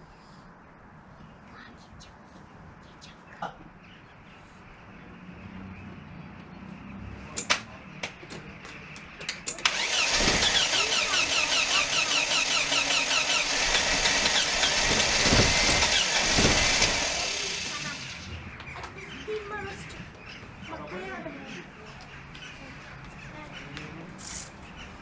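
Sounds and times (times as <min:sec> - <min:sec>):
sharp clicks and knocks: 0:07.4 - 0:10.6
starter motor cranking engine: 0:09.6 - 0:18.3.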